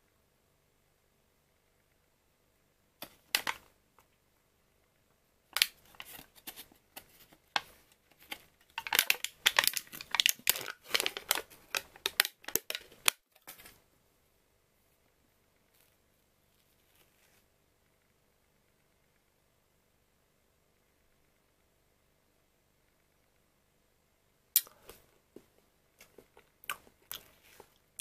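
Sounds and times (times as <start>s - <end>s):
foil lid crinkling and tearing: 7.6s - 13.7s.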